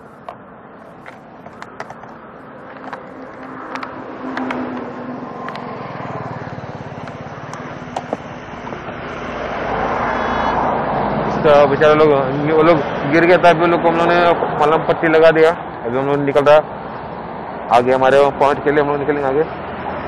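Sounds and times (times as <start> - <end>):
highway traffic noise: 0.0 - 20.0
vehicle engine approaching: 0.0 - 20.0
small clicks and knocks: 1.0 - 5.7.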